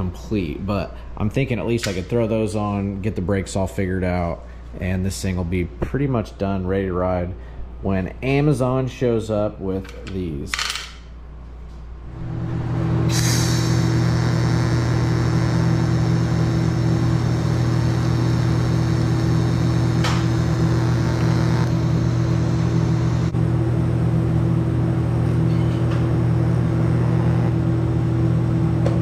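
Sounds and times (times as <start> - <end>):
welding machine humming: 12.2 - 28.9
thin high whine: 12.5 - 23.4, 24.9 - 28.0.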